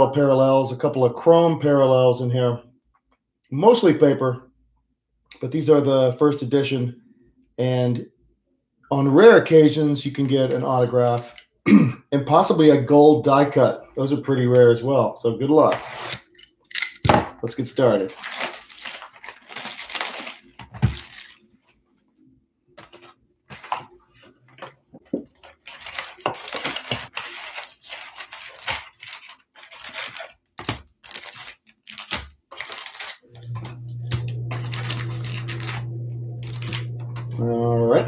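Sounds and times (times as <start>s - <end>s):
foil packs crinkling: 17.8s - 21.8s, 22.8s - 37.0s
shrink wrap tearing: 17.9s - 21.5s, 25.3s - 37.0s
steady low hum: 33.4s - 38.0s.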